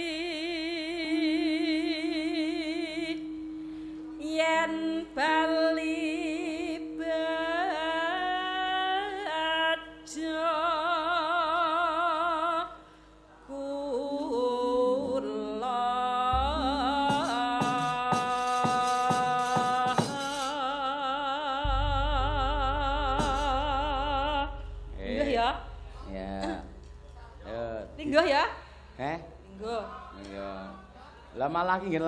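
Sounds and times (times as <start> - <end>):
woman singing with vibrato: 0.0 - 3.5, 4.1 - 12.8, 13.5 - 27.0
gamelan accompaniment: 1.0 - 10.3, 16.3 - 20.5, 21.6 - 31.0
drum strokes: 16.4 - 20.6, 21.6 - 31.0.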